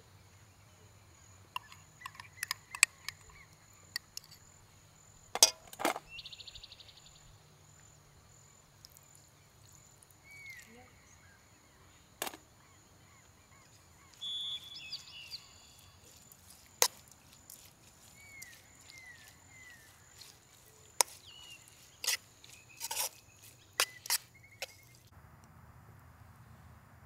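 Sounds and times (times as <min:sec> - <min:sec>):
small birds chirping: 0:00.2 - 0:05.3, 0:06.0 - 0:25.1.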